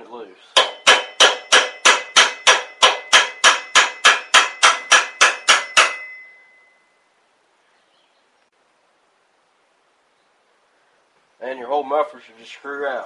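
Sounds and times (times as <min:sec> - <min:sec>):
hammer striking metal chisel: 0:00.6 - 0:06.6.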